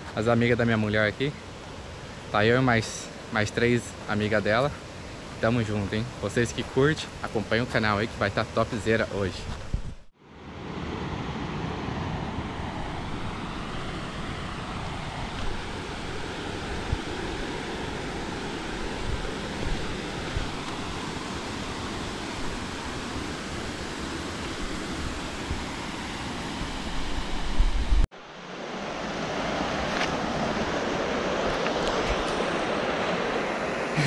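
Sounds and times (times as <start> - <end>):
wind buffeting microphone: 9.4 - 10.1, 12.2 - 25.8.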